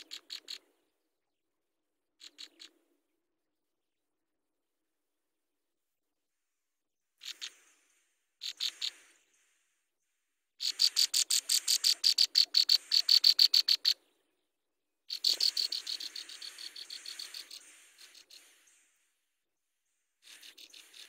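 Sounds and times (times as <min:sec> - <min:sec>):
nestlings cheeping: 0:15.1 - 0:19.0.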